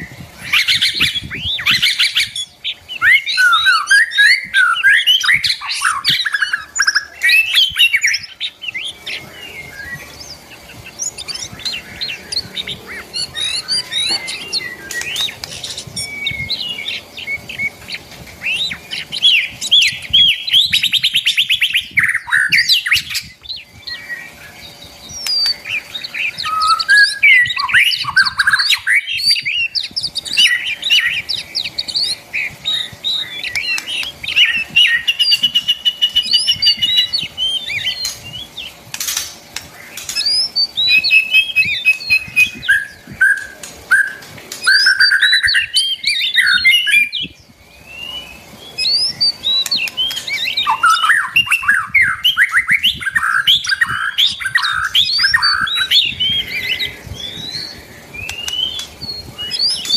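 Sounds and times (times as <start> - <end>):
songbirds singing and chirping: 0.0 - 59.9.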